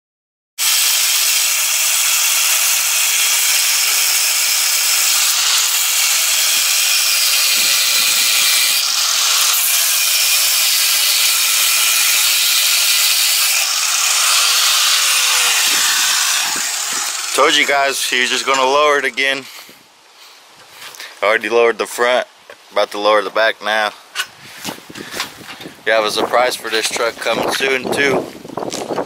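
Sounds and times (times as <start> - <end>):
electric grinder cutting steel: 0.6 - 19.4.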